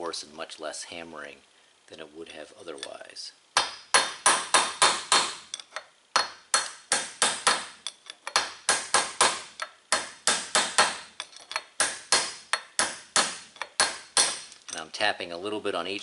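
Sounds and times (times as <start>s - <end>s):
hammer tapping metal punch: 3.6s - 14.8s.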